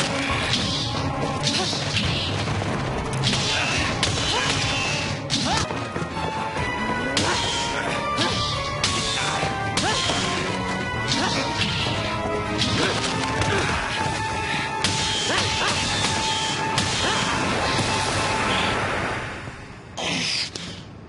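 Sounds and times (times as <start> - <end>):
dramatic background music: 0.0 - 21.0.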